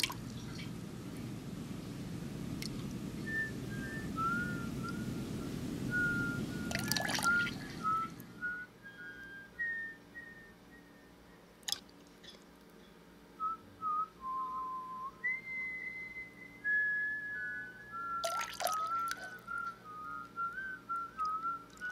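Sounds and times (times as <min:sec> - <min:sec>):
person whistling a tune: 0:03.2 - 0:11.5, 0:13.4 - 0:21.9.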